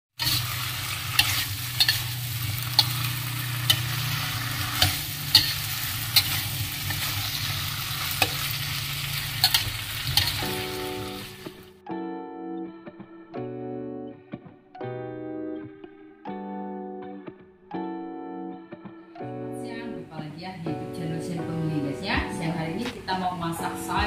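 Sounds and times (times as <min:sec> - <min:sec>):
food sizzling in a wok: 0:00.1 - 0:11.7
metal spatula scraping wok: 0:00.2 - 0:11.5
music: 0:00.2 - 0:24.0.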